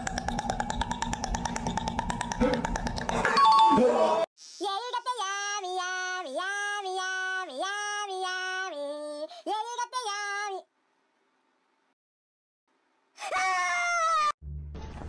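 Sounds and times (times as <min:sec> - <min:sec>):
high voice singing slow tune: 0:03.8 - 0:10.7.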